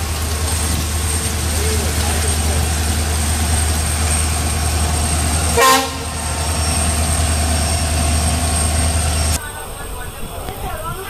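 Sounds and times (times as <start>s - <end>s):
diesel locomotive engine rumbling: 0.0s - 11.0s
train horn blast: 5.5s - 6.3s.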